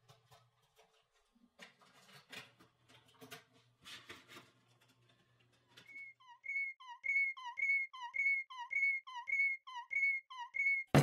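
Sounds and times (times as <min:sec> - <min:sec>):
two-note whistle: 0:05.9 - 0:11.0.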